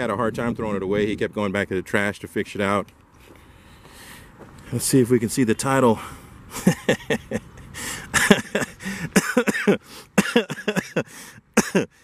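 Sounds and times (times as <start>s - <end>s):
man laughing: 6.5s - 12.0s
man coughing: 8.1s - 12.0s.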